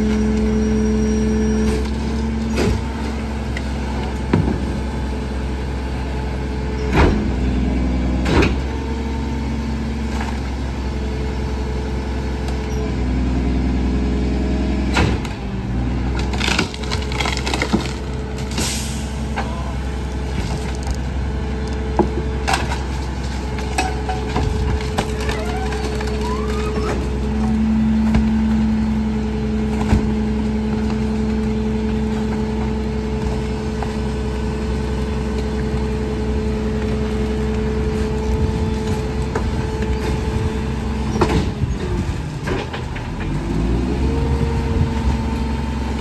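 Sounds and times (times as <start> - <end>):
diesel truck engine running: 0.0 - 46.0
trash clattering into hopper: 38.6 - 43.5.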